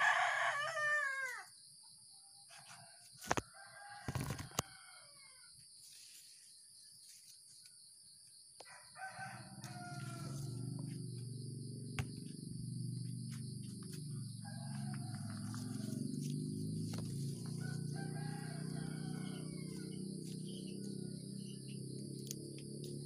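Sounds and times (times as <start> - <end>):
rooster crowing: 0.0 - 1.5, 3.4 - 5.5, 8.6 - 11.1, 13.9 - 21.9
low hum with shifting tones: 9.6 - 23.0
tomato plants rustling: 15.3 - 17.9.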